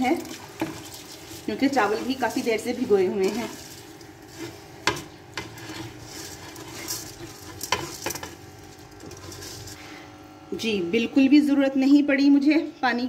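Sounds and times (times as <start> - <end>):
stock simmering: 0.0 - 10.0
rice scraped off steel plate: 0.3 - 8.4, 9.0 - 9.8.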